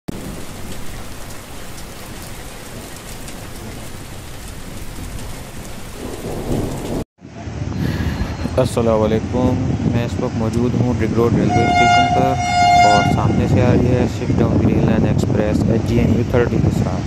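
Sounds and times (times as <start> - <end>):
steady rain: 0.1 - 7.0
low thunder rumble: 0.1 - 7.7, 9.2 - 16.2.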